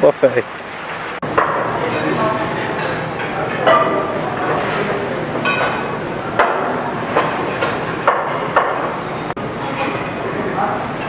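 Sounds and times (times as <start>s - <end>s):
dining room background din: 0.4s - 11.0s
crockery and cutlery clinking: 1.4s - 9.0s, 9.6s - 10.1s.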